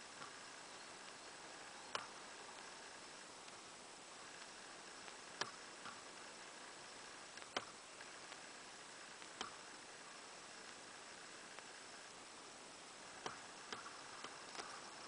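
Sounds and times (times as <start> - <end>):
faint steady hiss: 0.0 - 15.0
sharp single clicks: 1.9 - 2.7, 5.0 - 6.0, 9.2 - 9.7.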